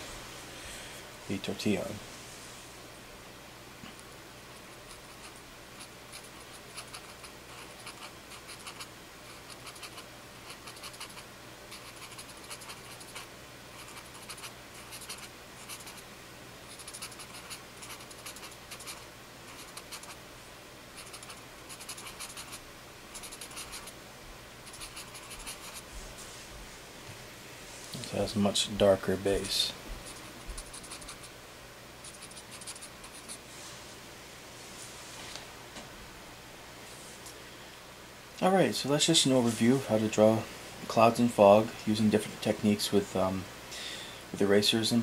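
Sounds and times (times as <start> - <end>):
paper stump scratching on paper: 4.9 - 16.0, 16.7 - 20.2, 21.0 - 22.6, 23.2 - 23.9, 24.7 - 25.9, 30.0 - 31.3, 32.0 - 33.4.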